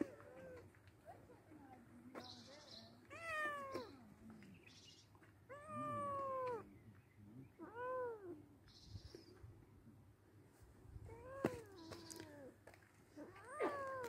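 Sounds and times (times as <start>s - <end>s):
cat meowing: 3.1s - 3.9s, 5.5s - 6.6s, 7.6s - 8.4s.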